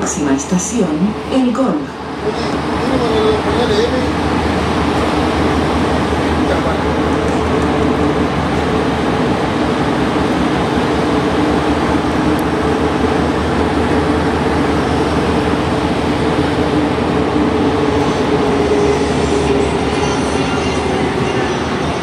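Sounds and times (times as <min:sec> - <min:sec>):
metro train rumbling in tunnel: 0:00.0 - 0:22.0.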